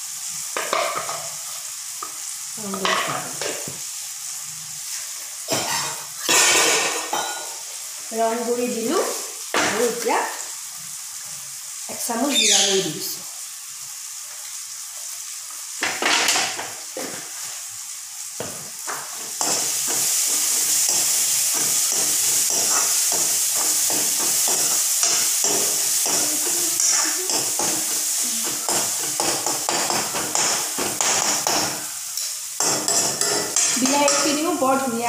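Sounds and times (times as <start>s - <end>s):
masala sizzling in a pan: 0.0s - 35.0s
spatula scraping a pan: 19.3s - 31.9s.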